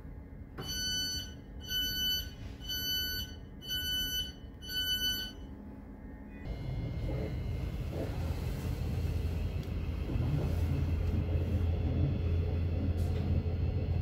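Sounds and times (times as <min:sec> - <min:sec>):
train carriage low rumble: 0:00.0 - 0:14.0
train door warning beeps: 0:00.6 - 0:05.5.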